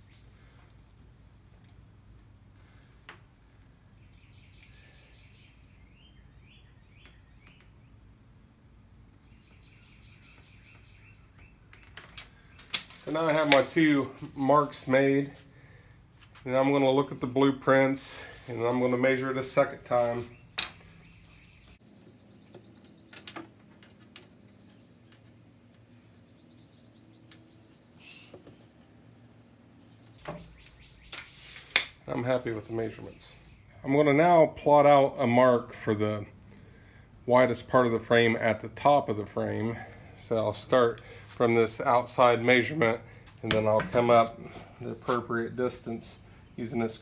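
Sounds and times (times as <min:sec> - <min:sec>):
bird chirping: 0:00.0 - 0:00.6, 0:03.9 - 0:08.1, 0:08.8 - 0:13.2, 0:20.0 - 0:28.7, 0:29.5 - 0:31.6, 0:32.7 - 0:34.1
rapid high-pitched chirping trills: 0:21.2 - 0:23.3, 0:26.0 - 0:28.3.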